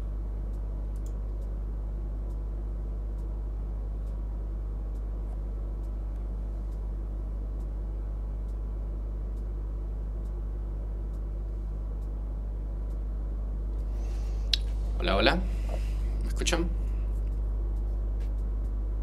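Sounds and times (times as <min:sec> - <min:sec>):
low electrical hum: 0:00.0 - 0:19.0
faint soft clicks: 0:00.5 - 0:01.6, 0:14.5 - 0:14.8.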